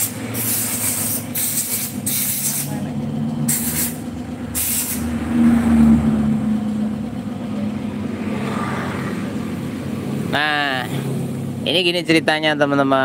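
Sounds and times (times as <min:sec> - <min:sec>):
engine idling: 0:00.0 - 0:13.0
brief sharp hiss: 0:03.5 - 0:04.0, 0:04.6 - 0:05.0.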